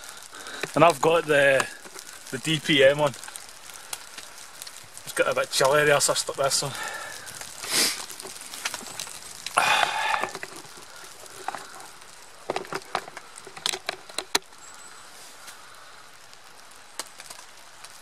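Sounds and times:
rustle: 0.0s - 18.0s
firewood blocks clacking together: 0.4s - 14.6s.

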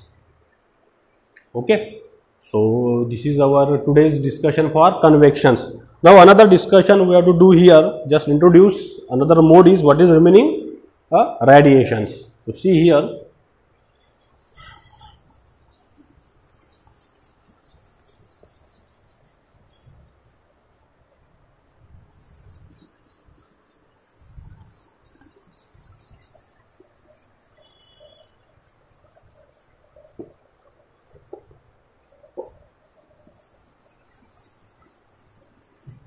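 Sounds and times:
duster scrubbing whiteboard: 13.8s - 36.0s.

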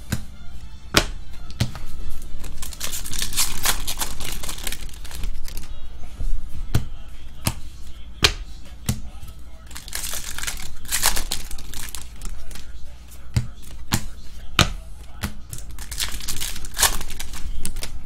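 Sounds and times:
cards rustling: 1.4s - 5.8s, 9.4s - 18.0s.

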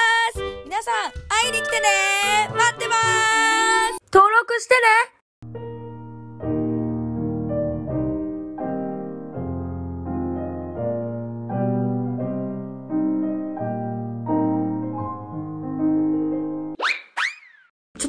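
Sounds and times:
piano chords: 5.4s - 16.8s.

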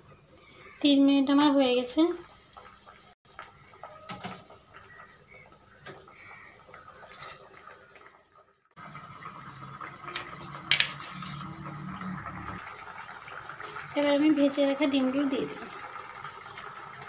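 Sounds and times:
curry bubbling in a pan: 1.8s - 17.0s.

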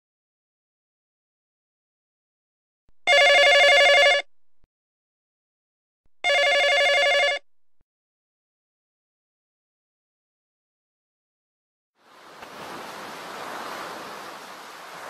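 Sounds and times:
telephone bell ringing: 3.1s - 4.3s, 6.2s - 7.5s.

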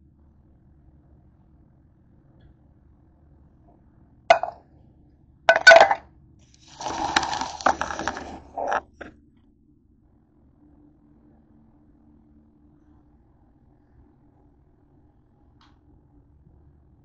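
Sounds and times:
camera handling rubbing and knocking: 4.3s - 4.5s, 5.5s - 6.0s, 6.8s - 9.1s
metal cookware clinking: 4.3s - 4.5s, 5.5s - 6.0s.

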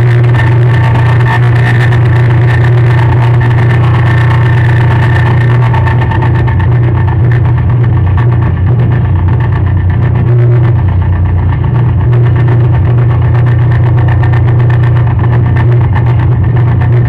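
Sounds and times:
crackling clicks: 0.0s - 17.0s
low droning hum: 0.0s - 17.0s.

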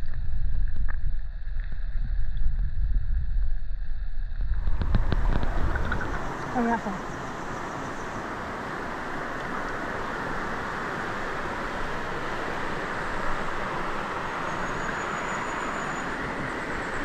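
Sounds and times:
river water flowing: 4.5s - 17.0s.

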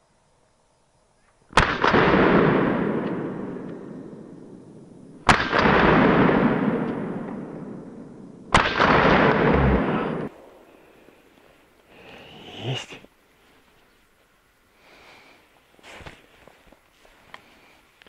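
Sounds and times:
shotgun shots: 1.5s - 4.0s, 5.2s - 10.4s
rolling echo of shots: 1.6s - 4.3s, 5.2s - 10.5s.

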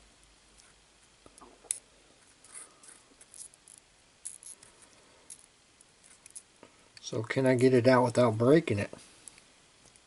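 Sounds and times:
faint clicks and scratching: 0.2s - 7.1s, 8.9s - 10.0s.

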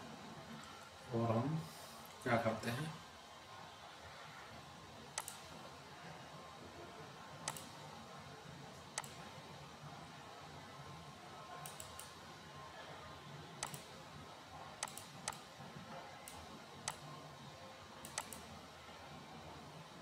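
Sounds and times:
faint steady hiss: 0.0s - 20.0s
computer mouse clicking: 5.2s - 5.5s, 7.4s - 7.8s, 9.0s - 9.2s, 11.6s - 12.1s, 13.6s - 13.9s, 14.8s - 15.5s, 16.2s - 17.0s, 18.0s - 18.5s.

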